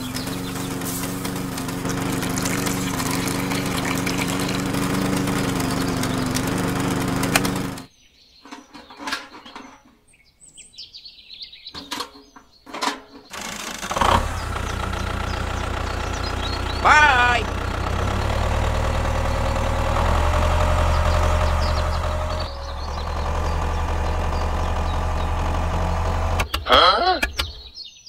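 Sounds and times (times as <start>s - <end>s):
low engine hum: 0.0s - 7.9s, 13.4s - 27.7s
small motor humming: 0.0s - 7.9s, 13.3s - 26.8s.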